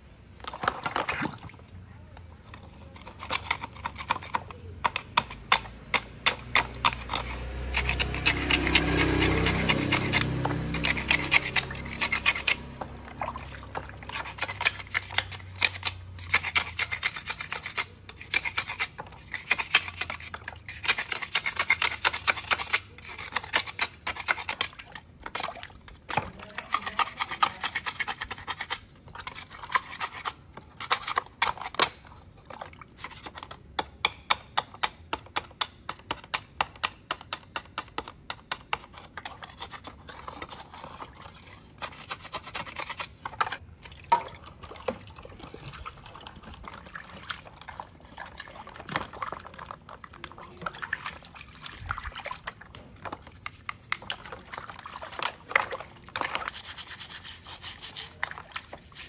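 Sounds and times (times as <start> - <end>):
metal scraper scraping coating: 2.5 - 43.6, 46.3 - 59.0
water splashing and dripping: 6.3 - 15.6, 43.7 - 59.0.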